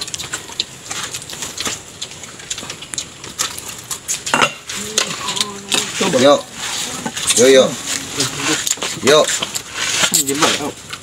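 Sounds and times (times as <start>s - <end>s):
plates clinking: 4.2s - 6.1s
spoons scraping steel bowls: 4.3s - 10.7s.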